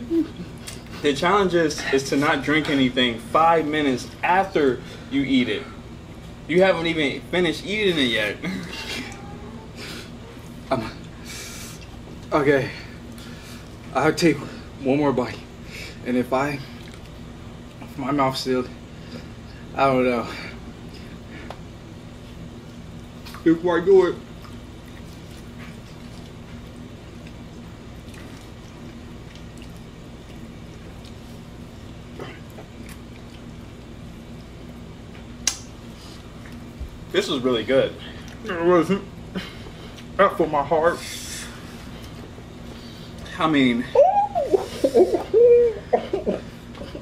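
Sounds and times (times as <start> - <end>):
low steady hum: 0.0 - 47.0
person chewing: 24.4 - 31.4, 32.1 - 34.5.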